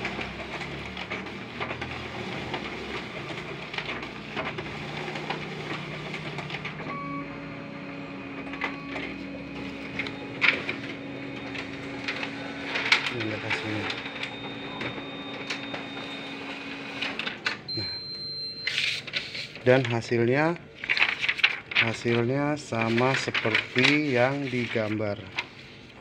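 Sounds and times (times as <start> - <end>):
copier whirring: 0.0 - 26.0
sharp copier clack: 8.2 - 17.6, 20.9 - 25.5.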